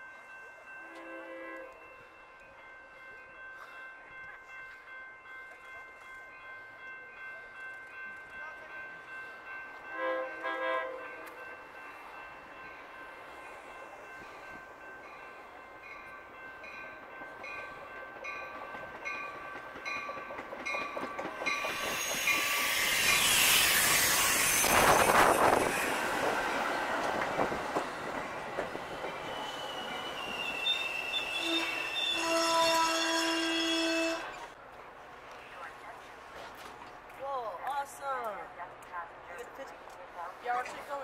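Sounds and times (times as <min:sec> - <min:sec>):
train wheel and rail noise: 0:00.0 - 0:41.0
train horn tones: 0:00.8 - 0:01.9, 0:09.9 - 0:11.4, 0:30.6 - 0:34.6
high brake squeal: 0:29.3 - 0:34.5.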